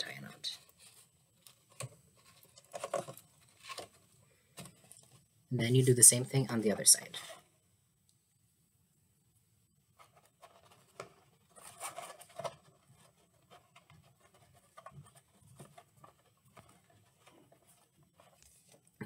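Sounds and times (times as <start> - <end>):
paper and cardboard rustling: 0.0 - 5.3, 9.9 - 19.0.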